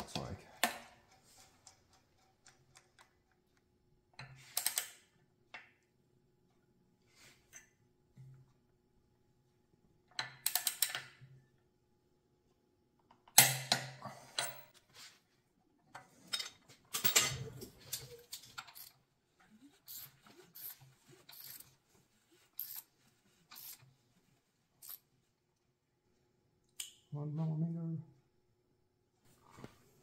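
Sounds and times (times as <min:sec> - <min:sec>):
ratchet wrench clicking: 0:19.9 - 0:21.6, 0:22.6 - 0:22.9, 0:23.5 - 0:23.8, 0:24.8 - 0:25.0.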